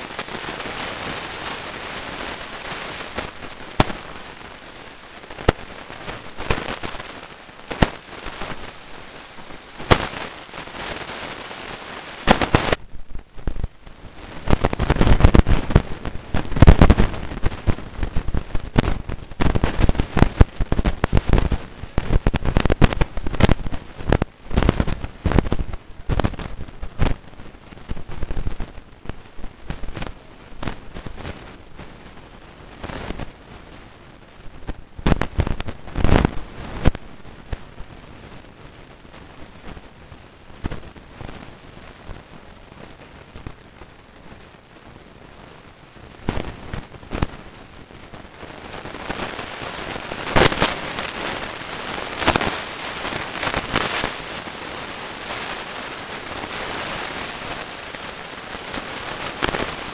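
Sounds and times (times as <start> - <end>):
rain hiss: 0.0 - 59.9
sharp pops: 2.7 - 4.3, 5.3 - 8.7, 9.8 - 11.1, 12.2 - 13.7, 14.4 - 27.2, 34.6 - 37.6, 52.1 - 52.7.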